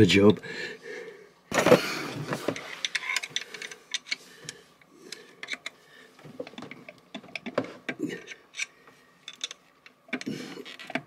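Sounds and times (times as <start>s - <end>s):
metal tools clicking and tapping: 8.5s - 11.0s.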